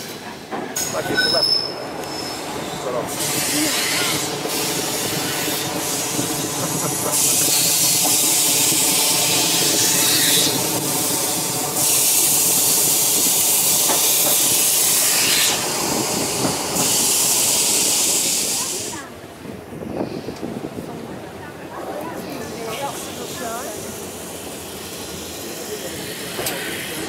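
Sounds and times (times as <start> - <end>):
tram wheels rumbling on rail: 0.0 - 27.0
tram motor humming: 1.7 - 19.8
loud hiss: 2.0 - 19.0.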